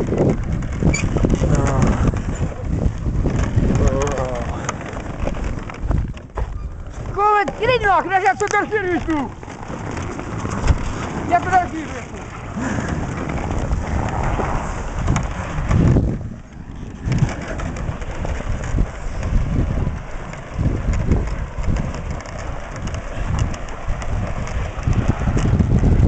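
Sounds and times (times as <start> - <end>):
wind rumble on microphone: 0.0 - 26.0
footsteps crunching through snow: 2.7 - 15.9.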